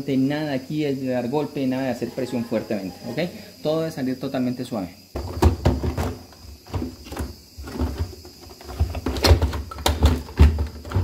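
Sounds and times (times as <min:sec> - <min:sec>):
plastic parts knocking and clicking: 0:05.2 - 0:11.0.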